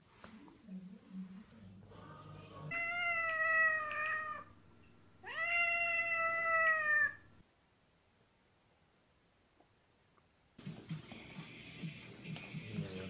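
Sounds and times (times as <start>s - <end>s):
cat meowing: 2.7s - 4.6s, 5.2s - 7.4s.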